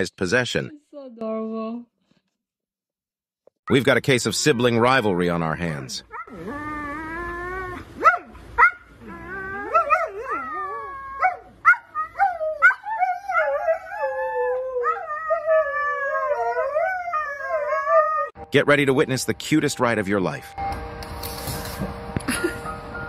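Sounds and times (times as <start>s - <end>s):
huskies howling: 6.0s - 18.4s
dog yipping: 6.1s - 13.8s.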